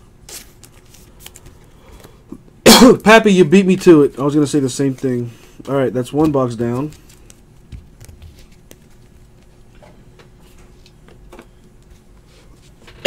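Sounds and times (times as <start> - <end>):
trading cards clicking and tapping: 3.7 - 11.6.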